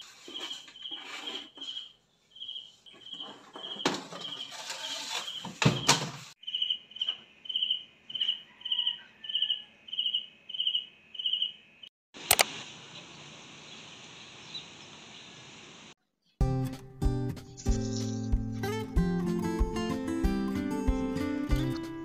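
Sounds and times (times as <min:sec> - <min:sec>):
cricket chirping: 0:01.6 - 0:04.4, 0:06.4 - 0:11.9
single click: 0:12.3 - 0:12.5.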